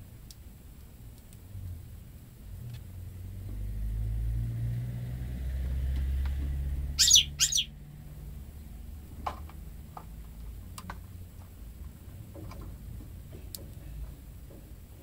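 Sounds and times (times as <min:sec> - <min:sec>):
bird calls: 0:07.0 - 0:07.8.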